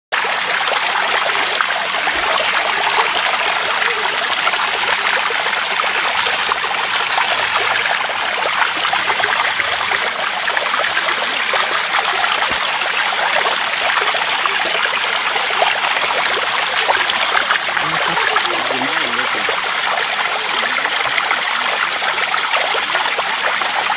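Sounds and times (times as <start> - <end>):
stream water rushing and trickling: 0.1 - 23.9.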